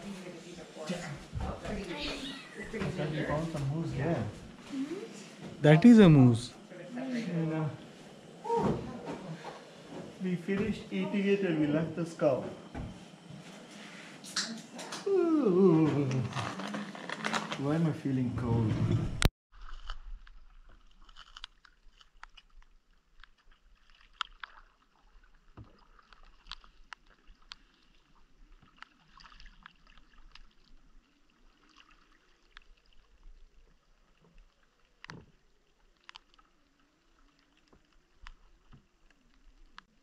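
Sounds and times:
water lapping and dripping: 19.6s - 40.0s
small ticks: 21.0s - 24.8s, 25.6s - 30.6s, 34.2s - 39.9s.

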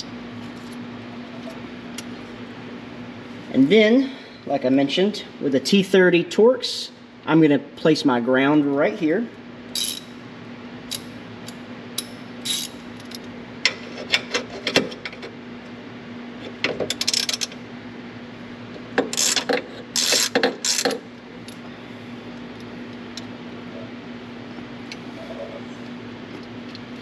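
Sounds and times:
hand ratchet clicking: 19.1s - 21.0s.

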